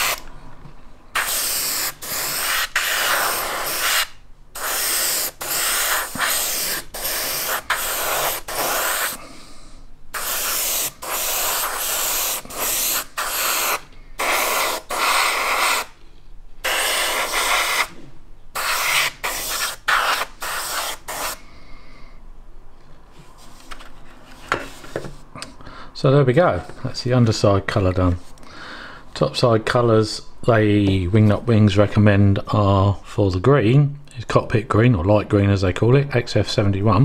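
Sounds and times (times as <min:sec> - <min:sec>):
airbrush hissing in short bursts: 0:00.0 - 0:00.2, 0:01.2 - 0:09.3, 0:10.1 - 0:16.0, 0:16.6 - 0:18.0, 0:18.6 - 0:21.4.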